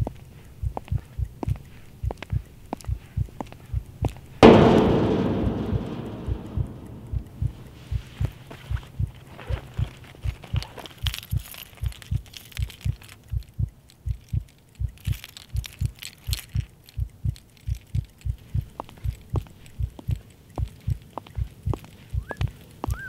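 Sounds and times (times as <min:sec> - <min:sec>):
low heartbeat thump: 0:00.6 - 0:23.0
keys jingling: 0:09.2 - 0:22.8.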